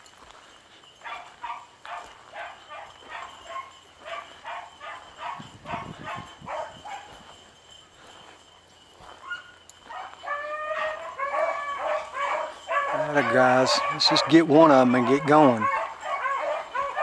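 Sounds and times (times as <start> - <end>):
dogs baying: 0.4 - 17.0.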